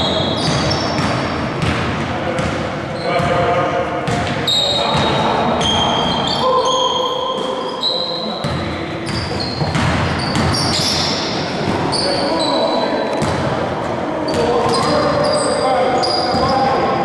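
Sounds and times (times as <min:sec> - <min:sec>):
sneakers squeaking on hardwood: 0:00.0 - 0:01.8, 0:04.1 - 0:13.5, 0:14.2 - 0:16.8
basketball bouncing: 0:00.3 - 0:02.6, 0:04.0 - 0:05.2, 0:08.4 - 0:10.9, 0:13.2 - 0:13.5.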